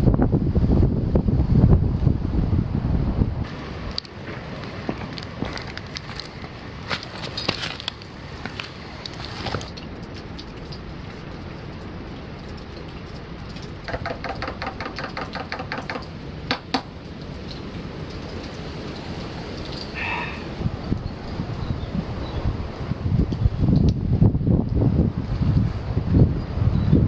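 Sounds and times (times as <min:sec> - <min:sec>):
steady rain hiss: 0:00.0 - 0:26.7
scattered clicks and knocks: 0:09.6 - 0:19.8.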